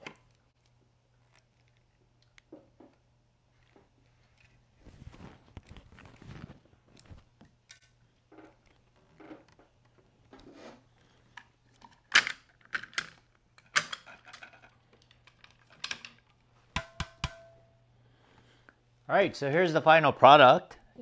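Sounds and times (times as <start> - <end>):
rustling of string and hands: 0.4 - 12.0.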